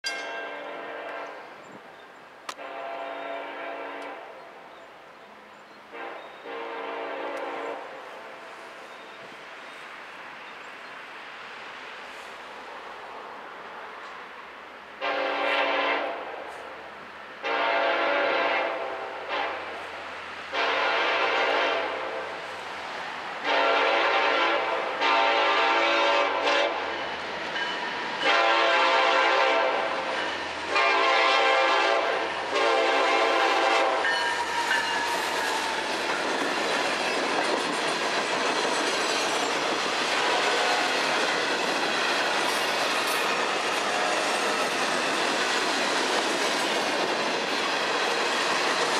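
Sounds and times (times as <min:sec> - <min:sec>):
locomotive air horn blasts: 0:00.4 - 0:01.5, 0:02.5 - 0:04.4, 0:05.9 - 0:08.5, 0:15.0 - 0:16.3, 0:17.4 - 0:19.8, 0:20.5 - 0:22.4, 0:23.4 - 0:27.0, 0:28.2 - 0:34.9, 0:40.2 - 0:41.0, 0:43.8 - 0:44.4.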